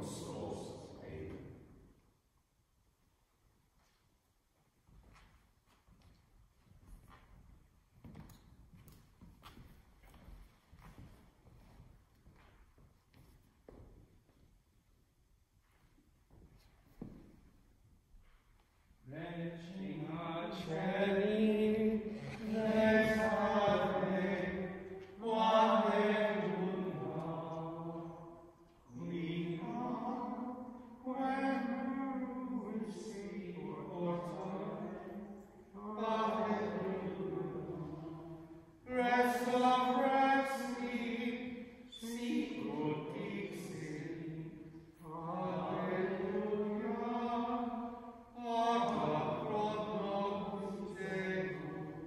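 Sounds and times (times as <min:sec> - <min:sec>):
person singing a chant-like hymn: 0:00.0 - 0:01.6, 0:19.1 - 0:52.0.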